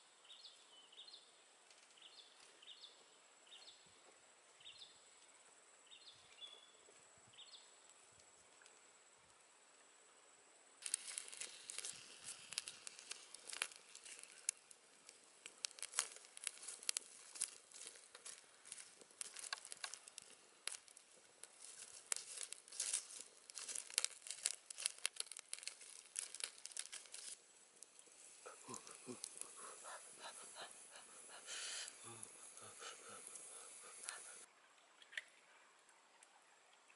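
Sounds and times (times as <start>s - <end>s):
twig fire crackling: 10.8s - 34.5s.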